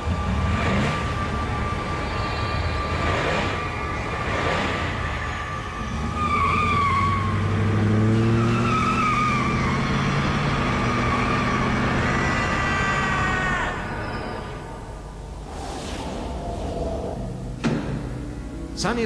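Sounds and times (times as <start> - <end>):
car engine revving: 0.0 - 18.7
tyres squealing: 0.3 - 17.4
man screaming: 11.7 - 14.5.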